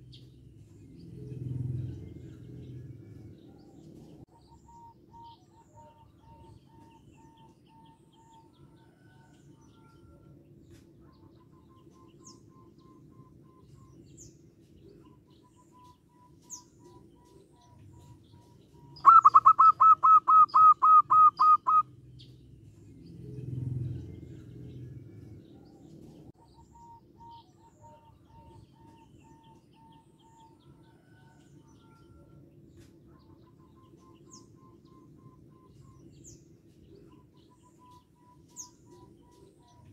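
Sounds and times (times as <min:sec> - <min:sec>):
low rumble: 0:00.3 - 0:04.3
dove staccato cooing: 0:16.8 - 0:21.8.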